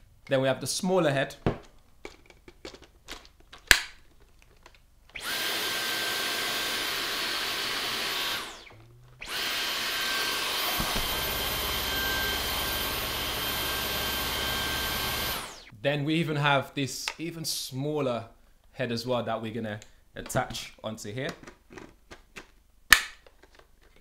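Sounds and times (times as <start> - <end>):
vacuum cleaner motor whine: 5.2 - 15.7.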